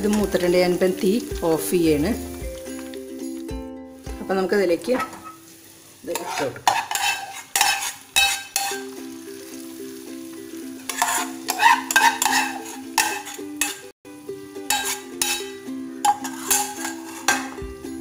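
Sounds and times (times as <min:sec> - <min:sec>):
spoon scraping and clinking on pan: 0:00.0 - 0:00.6, 0:04.9 - 0:05.5, 0:06.1 - 0:08.9, 0:10.8 - 0:13.9, 0:14.6 - 0:17.7
soft background melody: 0:00.0 - 0:05.0, 0:08.5 - 0:18.0
hot oil sizzling: 0:00.0 - 0:18.0.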